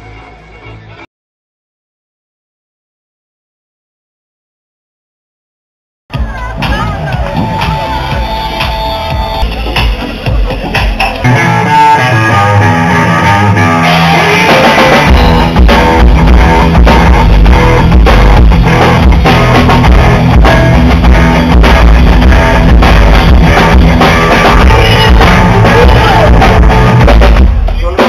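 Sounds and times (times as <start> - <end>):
drums and bass beat: 6.1 - 28.0
electric guitar: 6.1 - 28.0.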